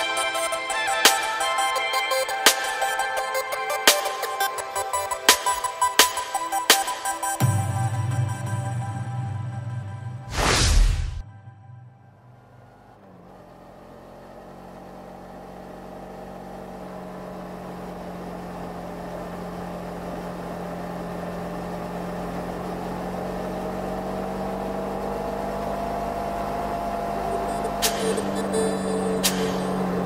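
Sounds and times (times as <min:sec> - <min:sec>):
motorcycle engine cruising: 0:12.0 - 0:30.0.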